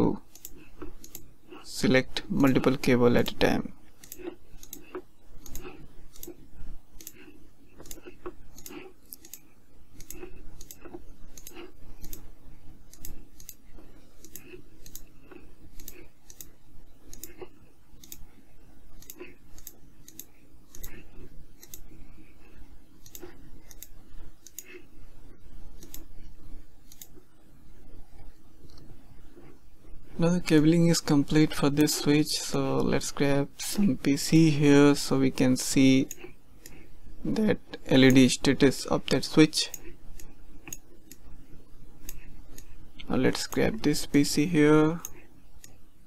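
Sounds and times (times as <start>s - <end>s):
computer mouse clicking: 0.3s - 1.3s, 2.4s - 12.3s, 12.9s - 18.3s, 18.9s - 24.8s, 25.6s - 26.2s, 26.8s - 27.3s, 35.8s - 36.9s, 39.7s - 41.3s, 42.0s - 44.4s.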